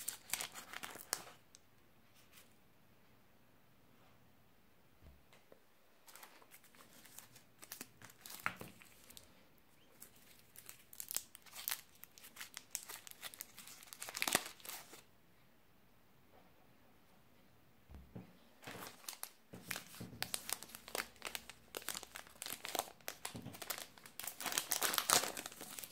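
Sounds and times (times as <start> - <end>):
plastic candy wrapper crinkling: 0.0 - 1.5, 6.1 - 15.1, 18.6 - 25.9.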